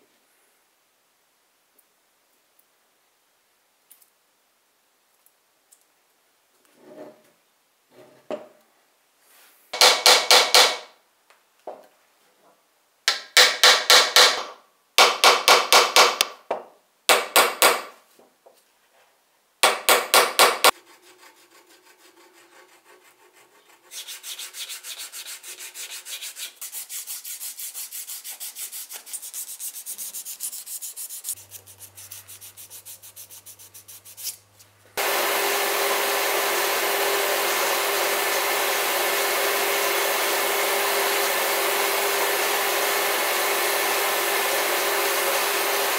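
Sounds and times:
buffing wheel whirring: 0:35.0 - 0:45.9.

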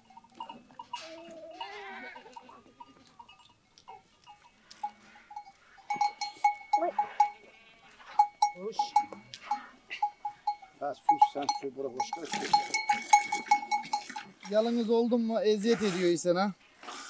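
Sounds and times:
goat bells clinking: 0:00.0 - 0:15.4
goats bleating: 0:00.4 - 0:03.2, 0:05.0 - 0:08.2.

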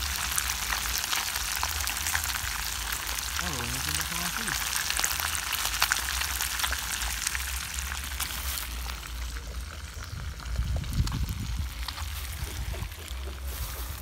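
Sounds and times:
fish frying in hot oil: 0:00.0 - 0:14.0
low rumble: 0:06.6 - 0:14.0.

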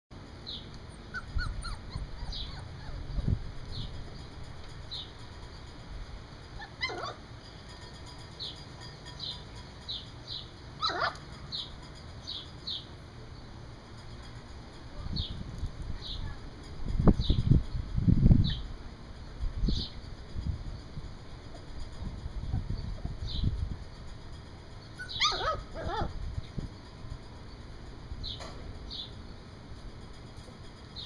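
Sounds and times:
puppies whimpering: 0:00.9 - 0:04.0, 0:06.6 - 0:07.2, 0:10.8 - 0:11.2, 0:24.8 - 0:26.2.

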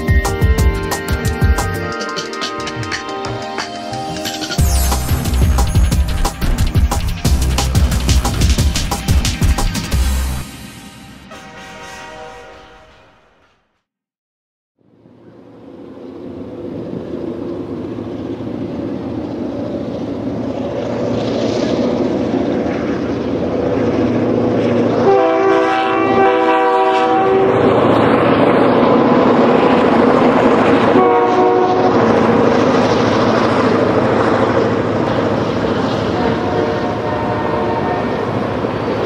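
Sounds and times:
diesel locomotive engine drone: 0:00.0 - 0:13.4, 0:14.8 - 0:39.0
train horn blasts: 0:11.2 - 0:13.6, 0:25.0 - 0:27.8, 0:30.9 - 0:32.1, 0:36.0 - 0:38.6.

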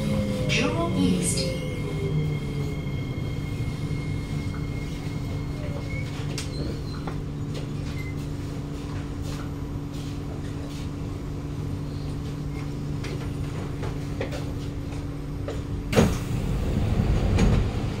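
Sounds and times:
train doors opening with a rush: 0:00.0 - 0:08.4, 0:15.6 - 0:18.0
train electrical hum: 0:00.0 - 0:18.0.

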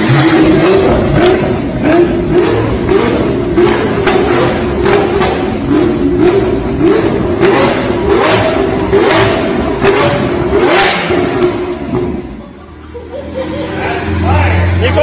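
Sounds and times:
car engine revving: 0:00.0 - 0:15.0
exhaust backfire pops: 0:00.4 - 0:12.2.

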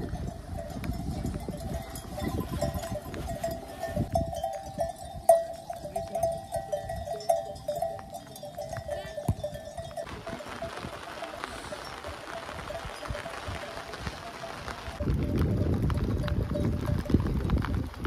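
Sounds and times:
sheep bells clanking: 0:00.0 - 0:17.6
wind rumble on microphone: 0:00.0 - 0:18.0.

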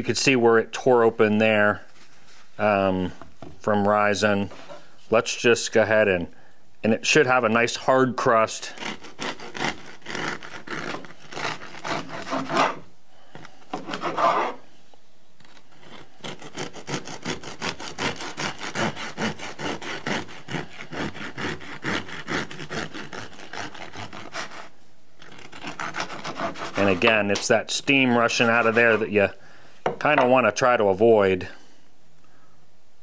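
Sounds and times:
bread knife sawing crust: 0:08.2 - 0:12.9, 0:13.8 - 0:14.6, 0:15.7 - 0:29.3.

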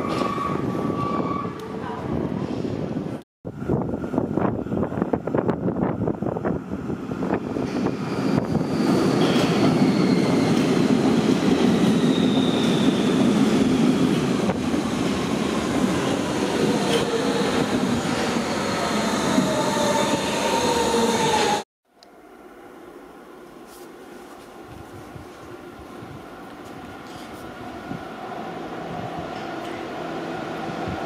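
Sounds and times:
train whining tones: 0:07.2 - 0:21.6.

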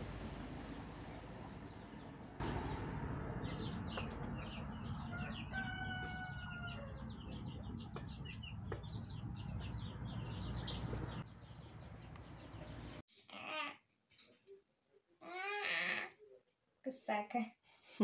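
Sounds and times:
low background rumble: 0:00.0 - 0:13.0
ducklings and goslings peeping: 0:03.4 - 0:12.9.

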